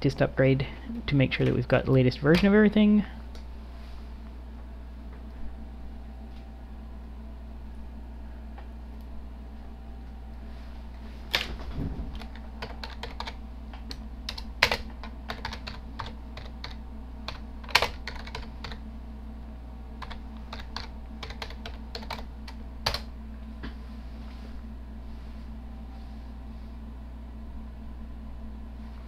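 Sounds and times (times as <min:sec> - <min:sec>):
steady low hum: 0:00.0 - 0:29.0
typing on computer keyboard: 0:12.2 - 0:13.4, 0:14.3 - 0:18.8, 0:20.0 - 0:23.1.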